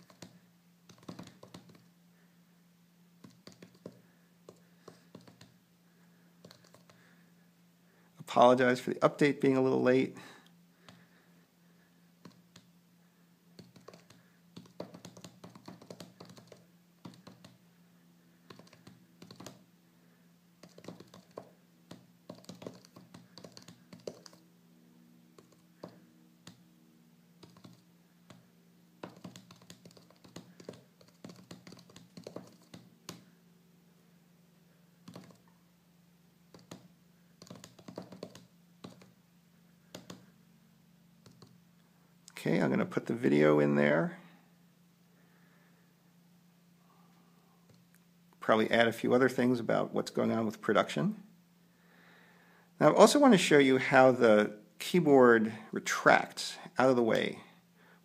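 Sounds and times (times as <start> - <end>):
fingers tapping on touchscreen: 0.0 - 1.9, 3.2 - 5.6, 6.4 - 7.0, 13.6 - 17.6, 18.5 - 19.6, 20.6 - 24.4, 25.4 - 26.6, 27.4 - 28.4, 29.0 - 33.3, 35.0 - 35.4, 36.5 - 39.1, 39.9 - 40.2.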